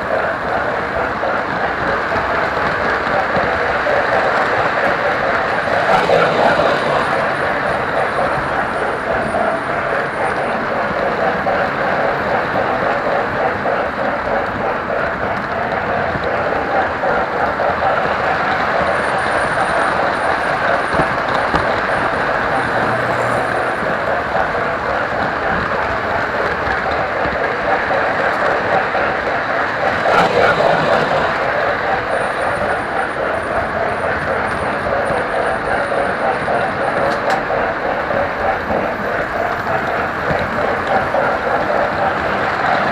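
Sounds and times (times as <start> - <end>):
model train rolling on track: 0.0 - 42.9.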